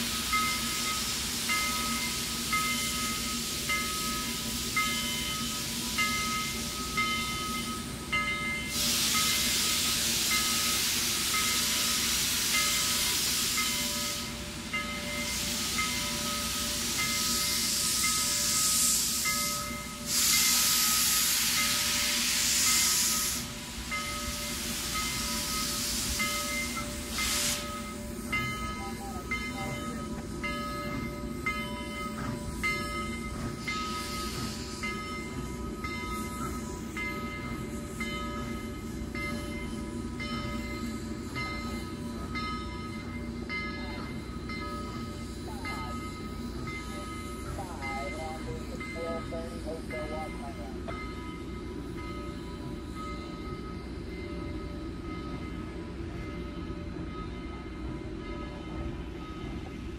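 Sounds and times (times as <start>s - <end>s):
steam locomotive hissing steam: 0.0s - 59.9s.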